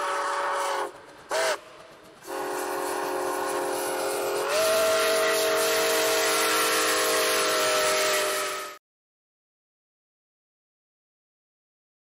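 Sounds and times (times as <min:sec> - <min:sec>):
steam locomotive chime whistle: 0:00.0 - 0:08.8.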